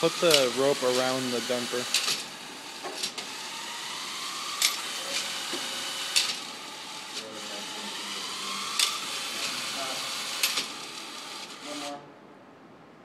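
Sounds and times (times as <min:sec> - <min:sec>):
motor whine and hiss: 0:00.0 - 0:12.0
sharp metallic ratchet clicks: 0:00.1 - 0:03.4, 0:04.5 - 0:06.4, 0:08.7 - 0:11.3.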